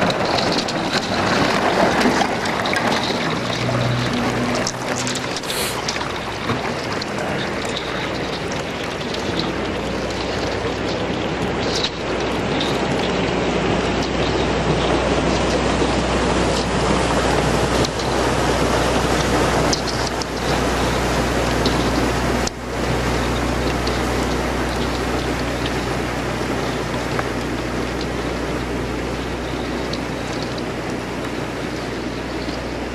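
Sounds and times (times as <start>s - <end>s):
boat engine humming: 0.0s - 32.9s
ice crackling against hull: 0.0s - 32.9s
low steady rumble: 0.0s - 32.9s
water sloshing: 0.0s - 32.9s
small ice ticks: 7.0s - 13.2s.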